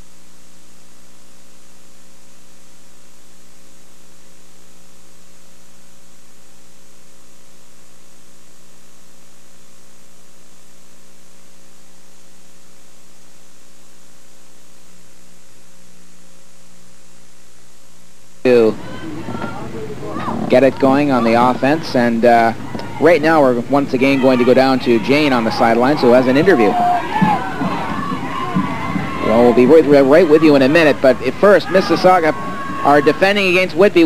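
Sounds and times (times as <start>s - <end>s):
constant hiss: 0.0s - 34.0s
electrical mains hum: 0.0s - 34.0s.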